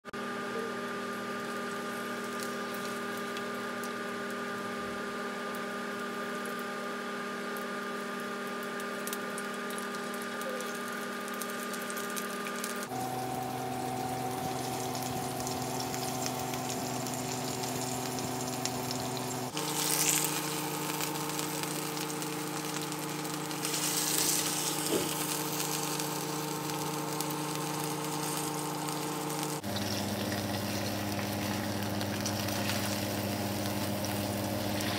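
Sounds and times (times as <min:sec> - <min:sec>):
steak sizzling in a frying pan: 0:14.0 - 0:34.9.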